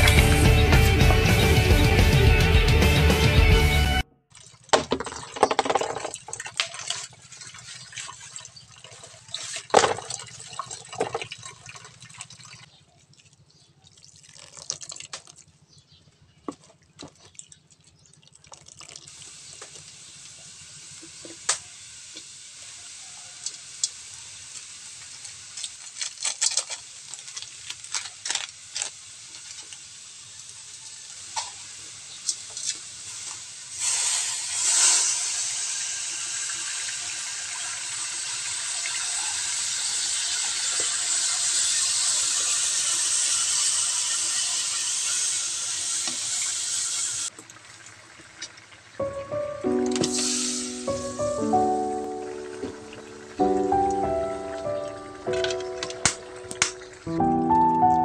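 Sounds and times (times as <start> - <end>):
wet squelching and dripping: 6.2 - 15.6, 16.5 - 19.2
steady hiss: 28.6 - 37.2, 49.6 - 58.0.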